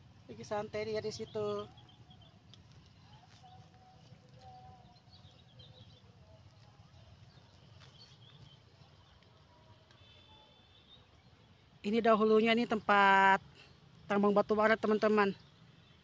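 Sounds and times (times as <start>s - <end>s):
faint outdoor hum: 0.0s - 16.0s
faint bird chirps: 0.8s - 12.0s.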